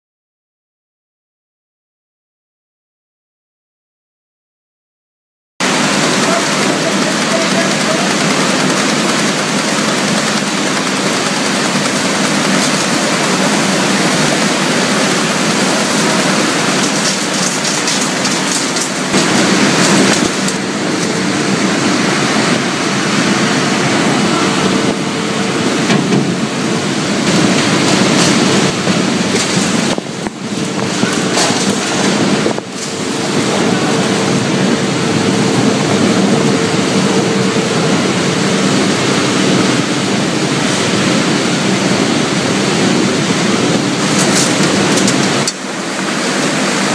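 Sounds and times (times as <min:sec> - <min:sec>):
plastic shredder running: 0:05.6 - 0:46.9.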